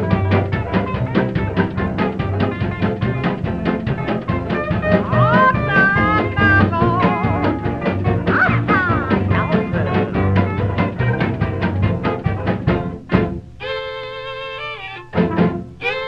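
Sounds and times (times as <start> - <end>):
music with quick beat: 0.0 - 13.5
melody with bending notes: 4.6 - 10.6.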